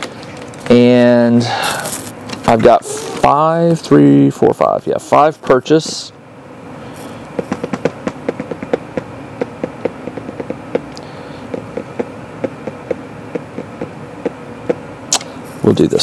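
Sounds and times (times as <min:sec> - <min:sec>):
faint steady hum: 0:00.0 - 0:16.0
fingertips tapping on table: 0:07.4 - 0:14.8.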